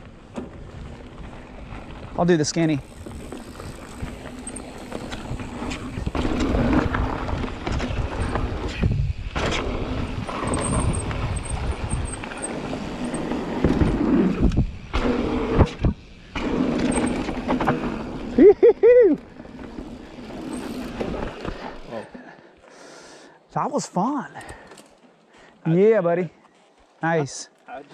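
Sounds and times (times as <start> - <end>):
bike rattling over bumps: 0.0 - 18.4, 19.2 - 22.4
bike tyres rumbling on dirt: 0.0 - 22.5.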